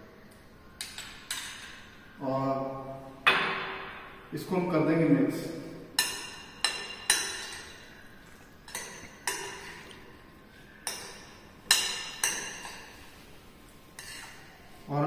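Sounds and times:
metal spoon clinking on ceramic bowl: 0:06.0 - 0:07.9, 0:08.6 - 0:09.9, 0:10.8 - 0:12.9, 0:14.0 - 0:14.5.

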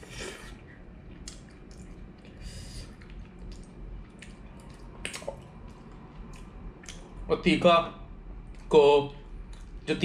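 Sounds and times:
person chewing: 0:00.0 - 0:07.1.

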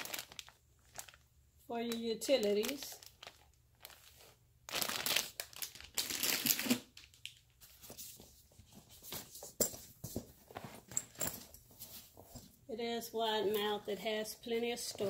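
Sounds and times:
plastic wrapping crinkling: 0:00.0 - 0:08.2.

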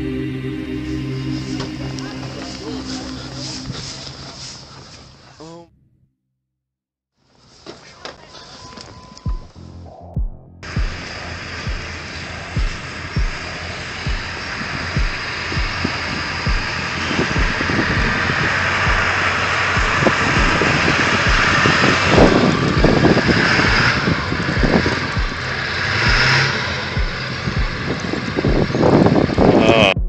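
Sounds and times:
steady low thumping beat: 0:00.0 - 0:04.2, 0:09.3 - 0:30.0
truck engine revving: 0:09.6 - 0:30.0
tyres spinning on snow: 0:10.9 - 0:29.4.

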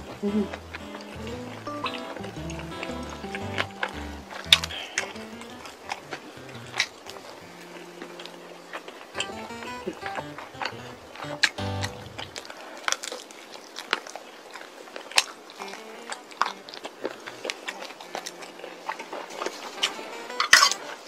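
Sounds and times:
crunching fried chicken: 0:11.9 - 0:20.9
crisp crunches of fried coating: 0:12.4 - 0:19.7.

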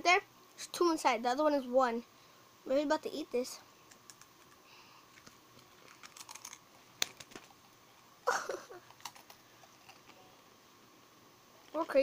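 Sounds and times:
crunchy snacks being chewed: 0:03.9 - 0:07.8, 0:08.8 - 0:10.2.

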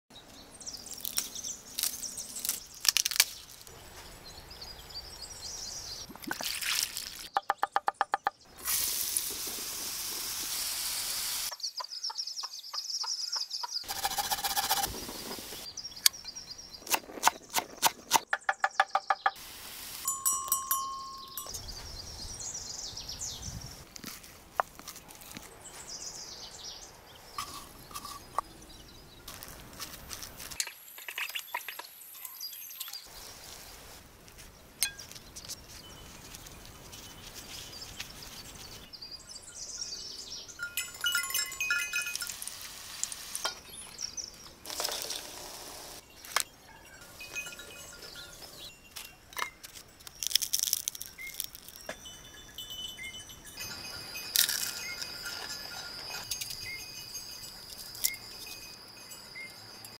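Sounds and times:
steady hiss: 0:08.6 - 0:11.5, 0:19.4 - 0:20.2.

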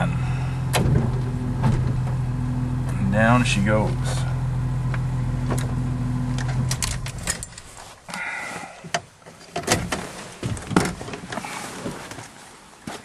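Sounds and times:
truck engine drone: 0:00.0 - 0:07.9.

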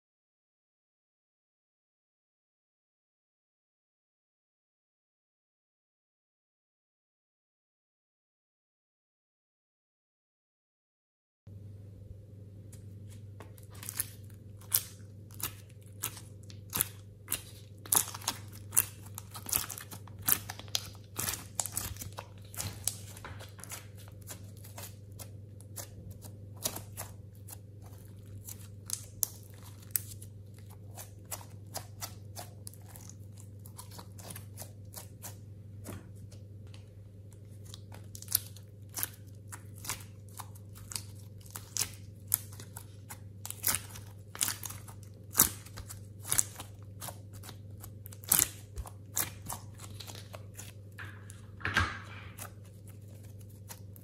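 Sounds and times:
steady low hum: 0:11.5 - 0:54.0
clay crackling and crunching: 0:13.1 - 0:54.0.

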